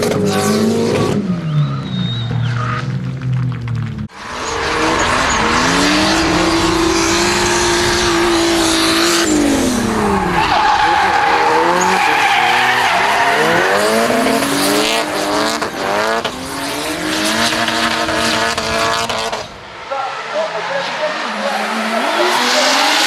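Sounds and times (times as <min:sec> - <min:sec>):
car engines revving high: 0:00.0 - 0:23.0
tyres screeching: 0:04.2 - 0:15.2.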